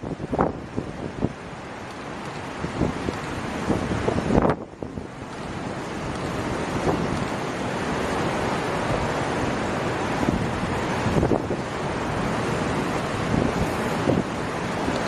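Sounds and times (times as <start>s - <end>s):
choppy sea waves: 0.0s - 15.0s
wind on microphone: 0.0s - 15.0s.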